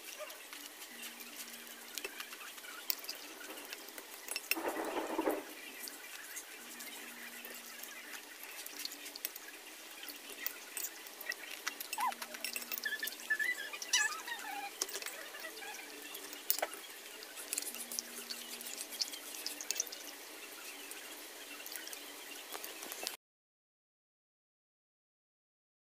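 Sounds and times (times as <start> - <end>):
wet chewing of noodles: 5.9 - 20.1
cutlery clinking on glass plate: 10.4 - 13.2.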